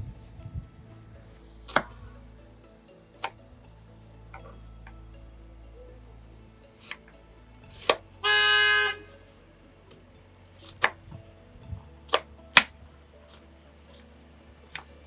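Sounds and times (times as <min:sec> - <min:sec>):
vehicle horn honk: 0:08.2 - 0:09.1.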